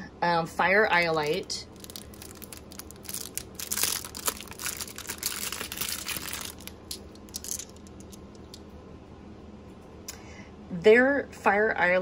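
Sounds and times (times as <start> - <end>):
plastic bag crinkling: 1.0 - 8.6.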